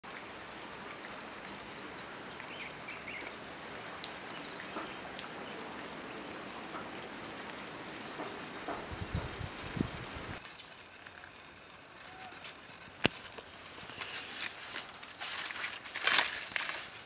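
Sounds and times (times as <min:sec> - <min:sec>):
steady outdoor hiss: 0:00.0 - 0:17.0
birds chirping: 0:00.2 - 0:11.2.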